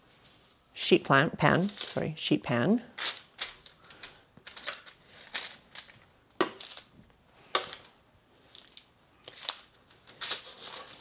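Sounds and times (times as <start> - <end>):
parchment paper crinkling: 1.6 - 2.1, 2.9 - 7.0, 7.6 - 11.0.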